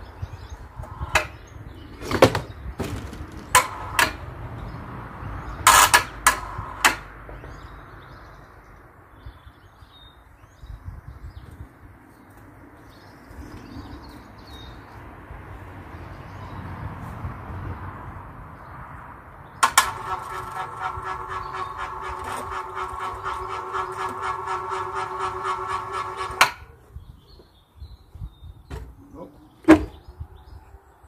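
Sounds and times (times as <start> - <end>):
log knocking on hoist: 2.0 - 4.3, 19.6 - 26.7.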